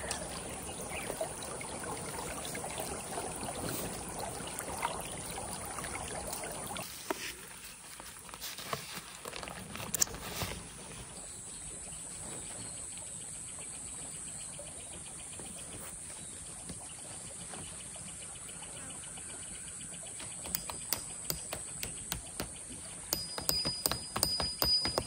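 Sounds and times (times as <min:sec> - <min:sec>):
running creek: 0:00.0 - 0:25.0
sharp clicks and knocks: 0:20.4 - 0:22.6, 0:23.2 - 0:25.0.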